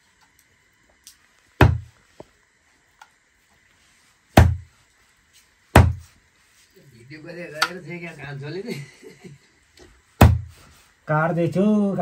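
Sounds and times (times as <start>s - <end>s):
heavy knife chopping on wood: 1.6s - 1.9s, 4.4s - 4.7s, 5.7s - 6.0s, 10.2s - 10.5s.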